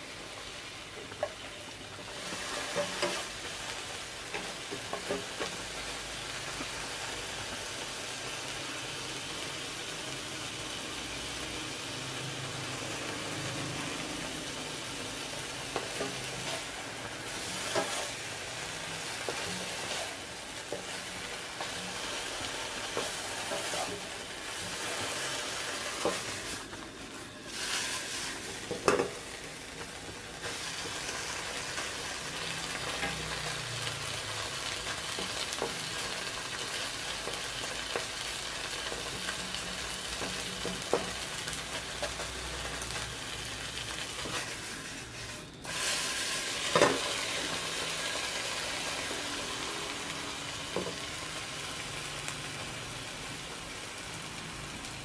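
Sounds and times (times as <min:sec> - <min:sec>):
fish and onions sizzling in pan: 0:00.0 - 0:55.0
spatula scraping and tapping pan: 0:02.0 - 0:03.6, 0:04.3 - 0:05.7, 0:17.4 - 0:18.2, 0:19.2 - 0:21.0, 0:25.9 - 0:26.4.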